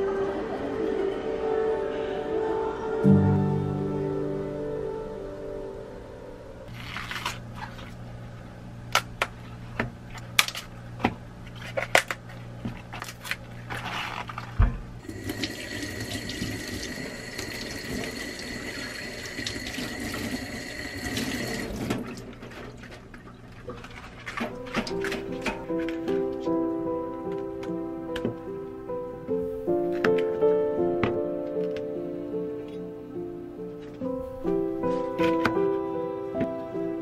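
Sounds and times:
faucet water splashing into sink: 15.1 - 22.3.

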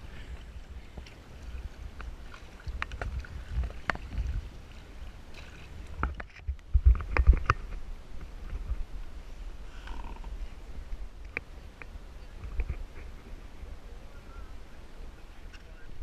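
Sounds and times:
wind rumble on microphone: 0.0 - 16.0
paddle knocks and splashes: 0.9 - 8.8.

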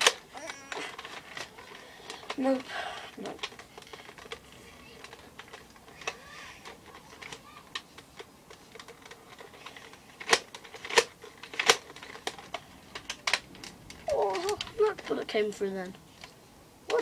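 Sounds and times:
plastic magazine clicks and rattles: 5.0 - 15.1.

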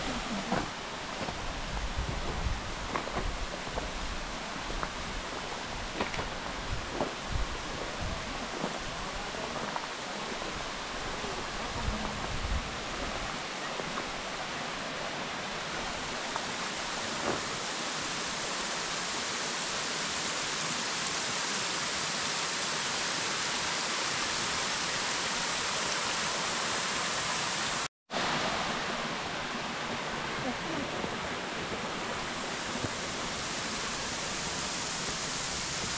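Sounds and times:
waterfall rushing: 0.0 - 35.9.

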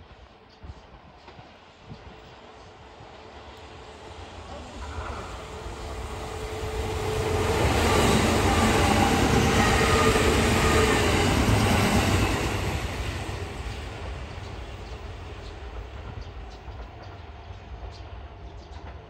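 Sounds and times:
electric train passing: 1.5 - 18.6.

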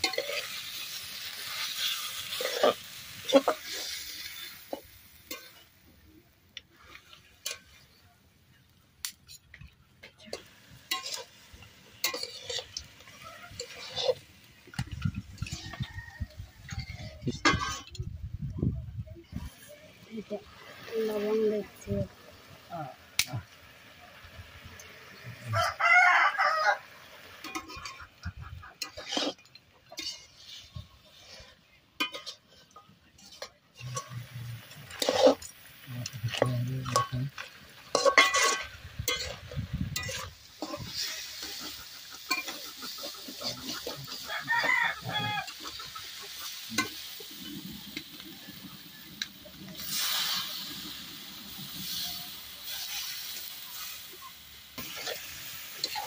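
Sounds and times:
metal spatula scraping pan: 0.0 - 5.7, 9.2 - 16.0, 16.6 - 18.0, 27.4 - 48.2, 51.8 - 56.0
water hissing in hot pan: 0.0 - 8.1, 9.0 - 18.0, 19.3 - 31.4, 32.0 - 56.0
meat sizzling: 0.0 - 18.0, 19.3 - 56.0
rooster crowing: 15.4 - 17.0, 25.4 - 26.9, 43.6 - 45.8.

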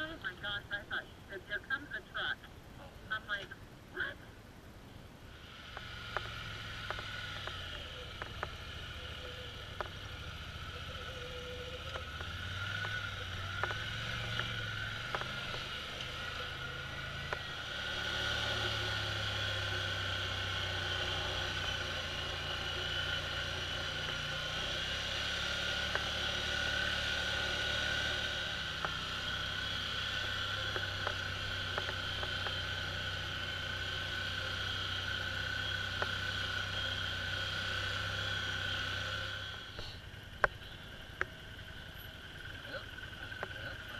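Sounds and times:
steady high whine: 0.0 - 43.9
atv engine running: 5.2 - 43.9.

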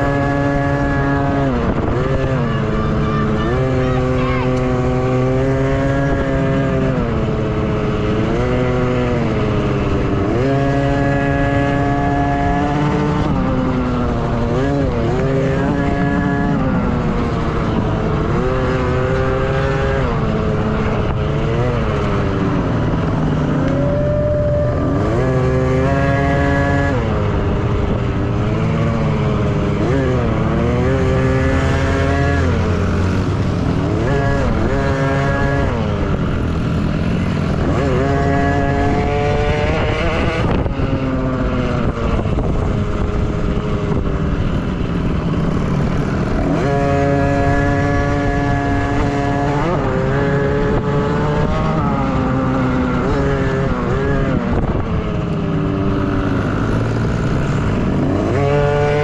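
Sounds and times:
dirt bike engines revving: 0.0 - 59.0.

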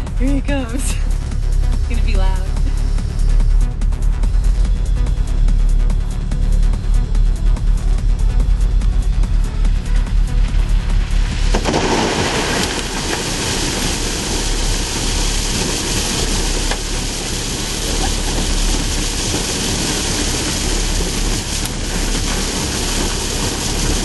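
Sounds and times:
rocks pouring into truck bed: 10.3 - 24.0.

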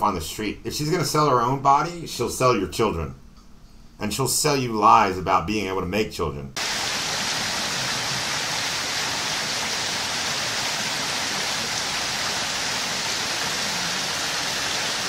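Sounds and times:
steady hiss: 6.6 - 15.0.

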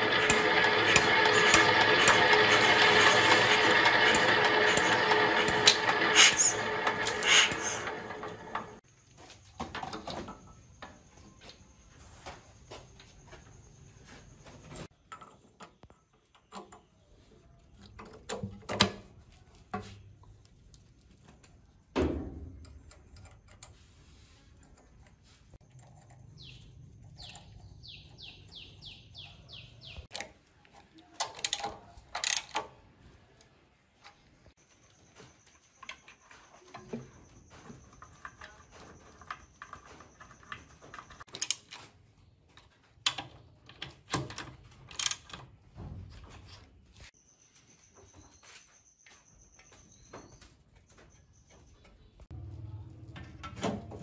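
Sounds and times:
ratchet wrench clicking: 0.1 - 8.3, 31.3 - 32.6, 44.9 - 45.3
metal parts clinking: 31.2 - 32.6, 44.0 - 45.4.

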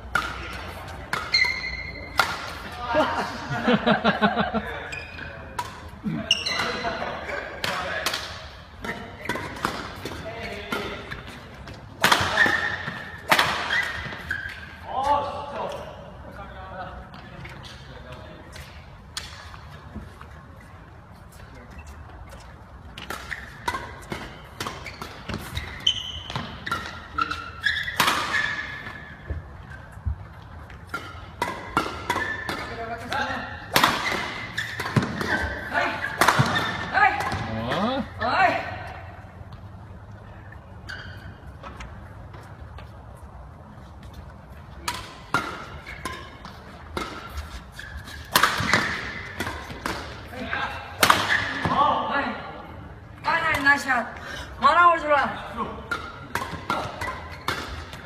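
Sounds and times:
racket hitting shuttlecock: 0.0 - 2.8, 5.5 - 14.7, 22.9 - 29.4, 30.6 - 37.8, 44.8 - 51.9, 55.8 - 58.0
shoe squeaks: 0.3 - 2.2, 4.8 - 7.5, 12.3 - 15.1, 20.5 - 30.2, 32.1 - 32.8, 34.0 - 37.0, 40.8 - 42.0, 45.6 - 49.8.

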